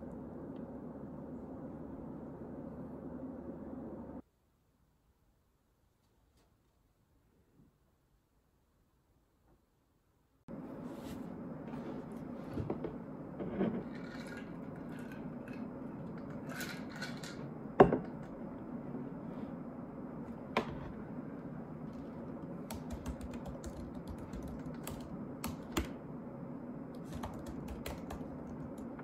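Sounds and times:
laptop keyboard typing: 22.6s - 26.0s, 26.9s - 28.9s.

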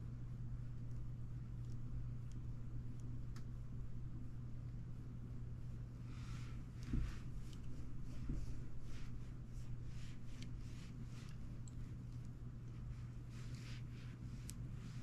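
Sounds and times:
steady low hum: 0.0s - 15.0s
light ticks: 0.8s - 3.6s.

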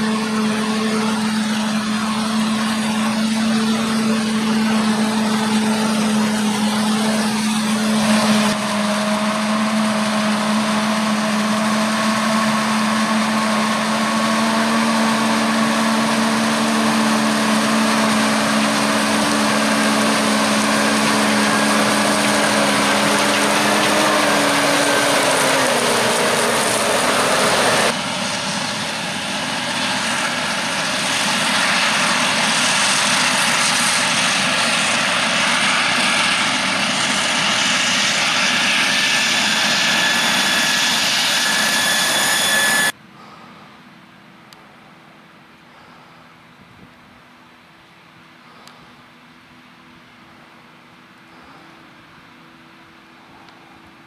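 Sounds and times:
forage harvester droning: 0.0s - 44.8s, 48.2s - 54.0s.

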